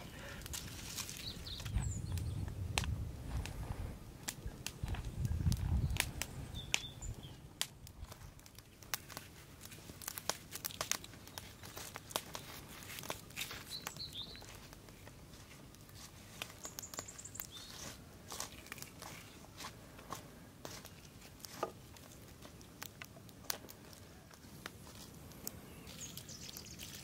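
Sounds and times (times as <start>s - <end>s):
onion skin crackling: 0.0s - 3.6s, 7.6s - 27.0s
bird chirps: 5.3s - 7.4s, 13.6s - 14.5s, 25.6s - 27.0s.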